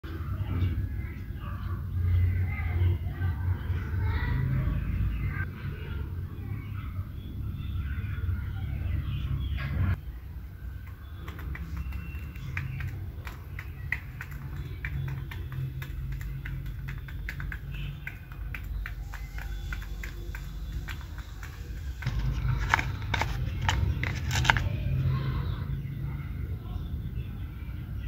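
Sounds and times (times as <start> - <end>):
chickens pecking on concrete: 10.8 - 25.0.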